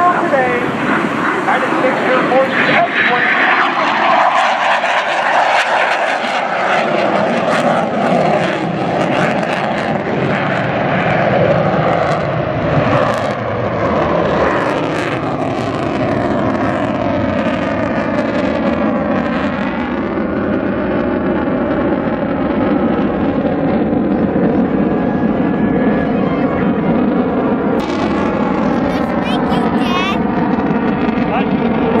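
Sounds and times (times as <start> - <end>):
jet engine roar: 0.0 - 32.0.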